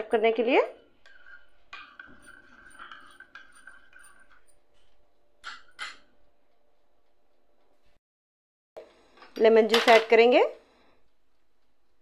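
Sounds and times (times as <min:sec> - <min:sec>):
spoon scraping ceramic bowl: 0:00.1 - 0:06.2
spoon clinking against bowl: 0:01.0 - 0:04.6.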